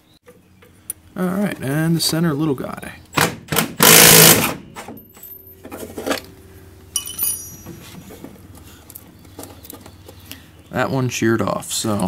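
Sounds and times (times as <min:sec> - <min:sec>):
impact wrench hammering: 0:03.2 - 0:04.6
bright metallic ring: 0:06.9 - 0:07.9.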